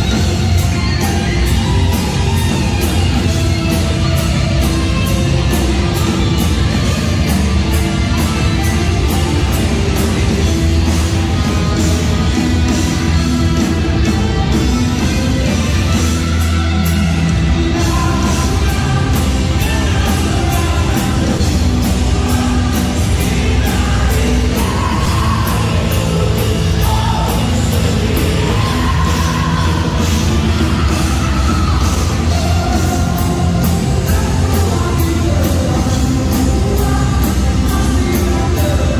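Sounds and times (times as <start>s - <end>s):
hard rock band playing: 0.0s - 38.9s
person singing: 16.0s - 38.9s.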